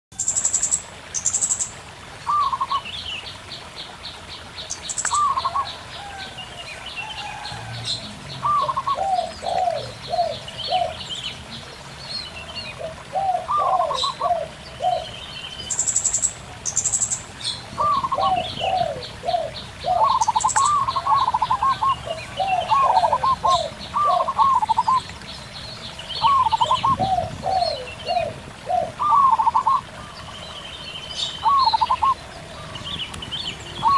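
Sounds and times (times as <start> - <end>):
running water murmur: 0.1 - 33.9
doves cooing: 5.1 - 11.8, 12.6 - 15.2, 17.6 - 25.1, 26.2 - 30.6, 31.4 - 33.9.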